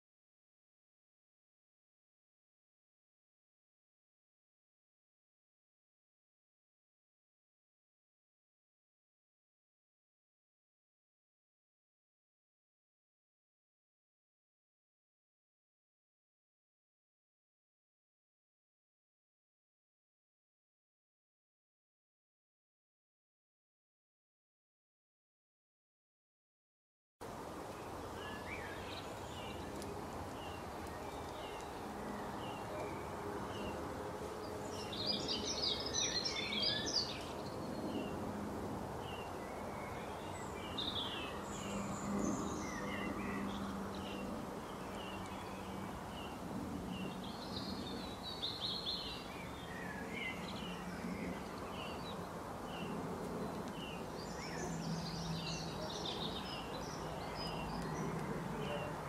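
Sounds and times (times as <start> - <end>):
twittering birdsong: 27.4 - 59.0
bird chirping: 34.4 - 38.2.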